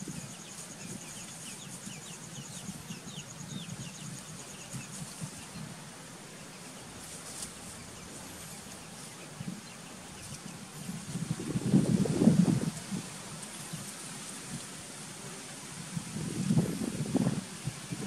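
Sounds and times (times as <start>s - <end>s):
small bird chirping: 0.0s - 5.7s.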